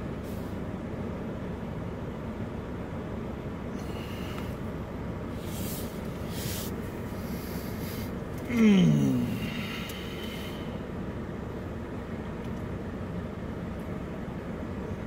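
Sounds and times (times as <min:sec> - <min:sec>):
steady low rumble: 0:00.0 - 0:15.0
hissy swells: 0:05.3 - 0:08.2.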